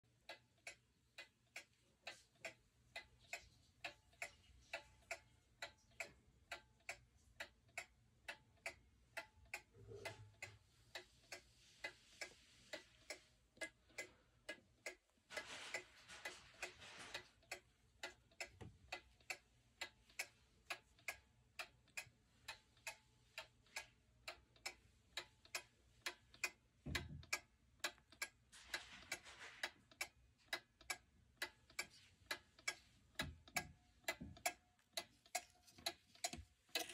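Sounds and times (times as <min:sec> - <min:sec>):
pendulum clock ticking: 0:00.0 - 0:36.9
soft rustle: 0:10.8 - 0:13.4, 0:15.3 - 0:17.7, 0:28.5 - 0:30.0.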